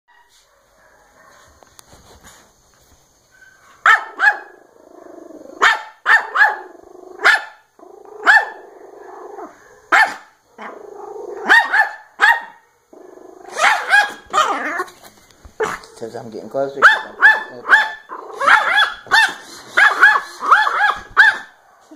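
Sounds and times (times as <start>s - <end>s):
small dog barking: 0.1s - 1.5s, 3.4s - 4.6s, 5.6s - 8.6s, 9.4s - 10.8s, 11.4s - 12.7s, 13.4s - 14.9s, 15.6s - 16.0s, 16.8s - 21.9s
dog growling: 4.4s - 5.6s, 6.5s - 9.9s, 10.6s - 11.5s, 12.9s - 14.9s, 17.1s - 21.2s.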